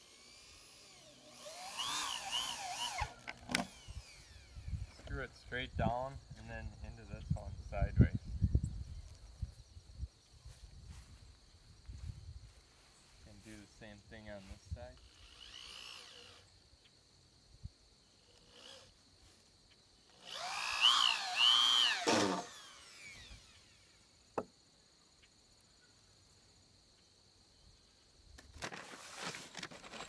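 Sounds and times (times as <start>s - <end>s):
cordless drill driving a screw: 0.0s - 5.1s, 15.0s - 16.5s, 18.3s - 19.0s, 20.1s - 24.0s.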